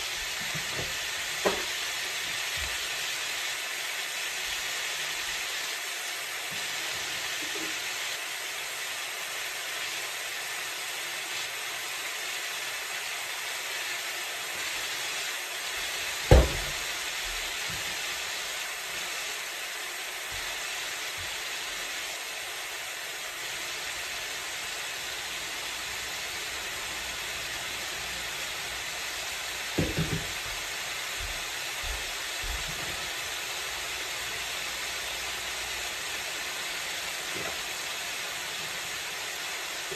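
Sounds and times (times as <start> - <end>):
food sizzling in a skillet: 0.0 - 39.9
loud knock: 16.3 - 16.8, 29.8 - 30.3.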